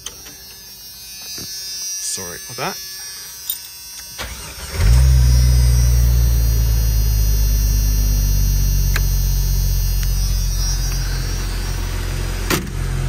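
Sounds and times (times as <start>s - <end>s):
car engine starting and idling: 4.2s - 13.0s.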